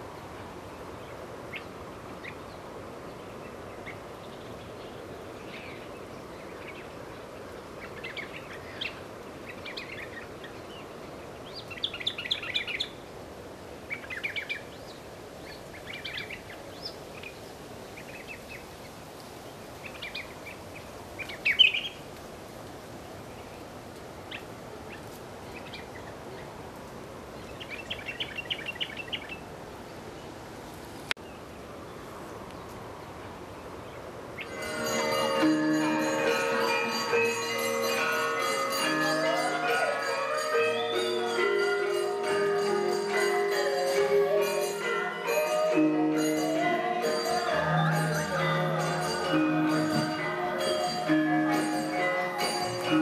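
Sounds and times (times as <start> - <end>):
steady background hiss: 0.0 - 53.0
birds chirping: 33.7 - 53.0.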